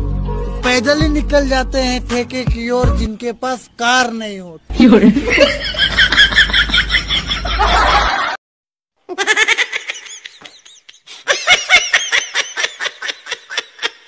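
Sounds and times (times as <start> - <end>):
person laughing: 4.7 - 8.4, 9.1 - 14.0.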